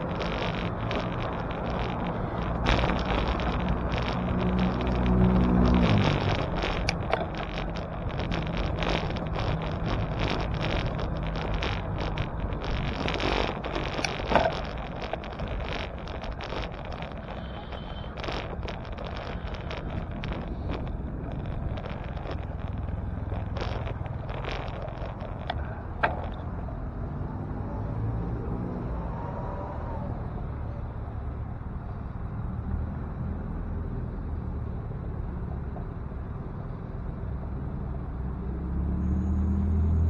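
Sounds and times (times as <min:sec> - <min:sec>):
rattles and clicks: 0:00.0 - 0:26.7
short whine: 0:00.0 - 0:26.7
motor vehicle engine: 0:00.0 - 0:40.0
wind and road noise: 0:00.0 - 0:40.0.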